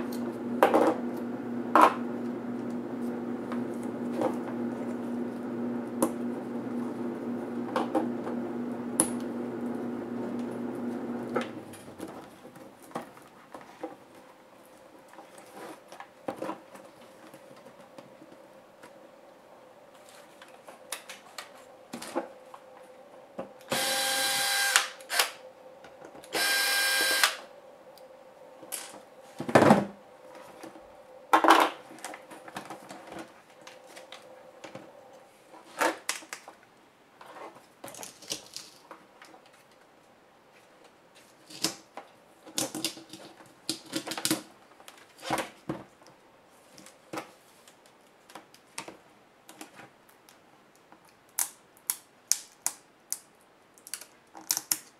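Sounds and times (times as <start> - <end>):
electric screwdriver whirring: 23.7 - 25.4, 26.3 - 27.4.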